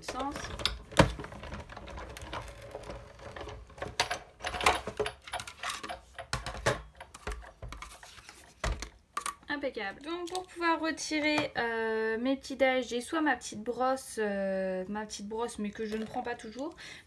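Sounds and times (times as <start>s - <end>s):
hand-cranked machine rollers: 0.0s - 6.2s
plastic plates clacking: 0.0s - 9.5s.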